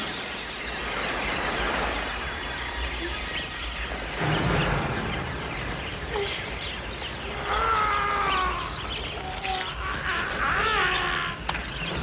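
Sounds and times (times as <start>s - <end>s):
flock of sparrows chirping: 0.0s - 12.0s
fluttering wings: 7.5s - 12.0s.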